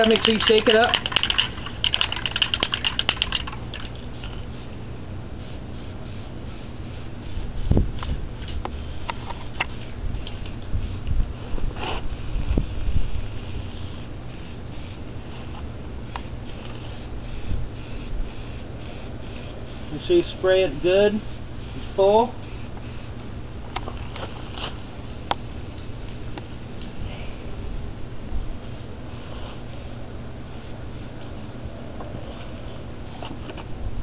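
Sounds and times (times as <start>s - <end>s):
spray can ball rattling: 0.0s - 4.6s, 6.1s - 11.0s
low steady rumble: 0.0s - 34.0s.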